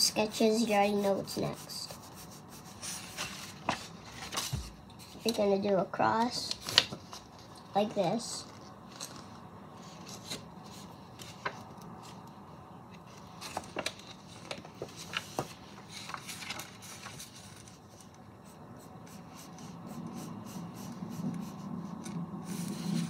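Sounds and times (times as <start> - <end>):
paper being handled and rubbed: 0.1 - 5.4, 13.1 - 23.0
pencil scratching on paper: 0.2 - 3.2, 18.4 - 23.0.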